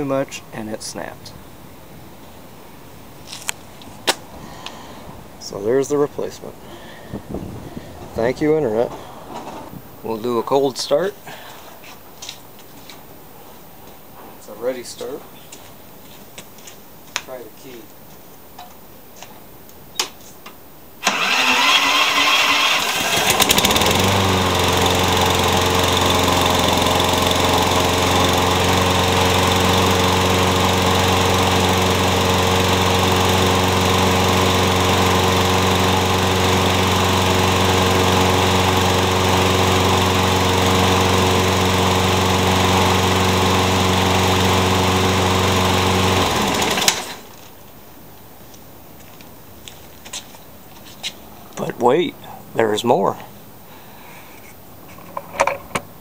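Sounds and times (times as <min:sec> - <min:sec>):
electric starter cranking: 0:21.0 - 0:47.3
lawn mower engine running: 0:21.0 - 0:47.3.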